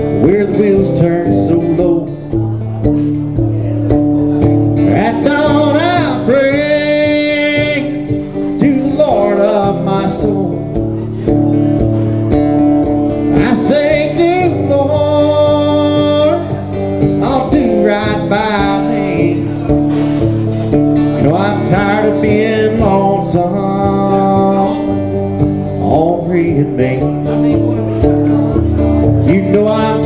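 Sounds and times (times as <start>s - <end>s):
man singing: 0.0s - 11.5s, 13.1s - 20.3s, 21.0s - 30.0s
acoustic guitar: 0.0s - 30.0s.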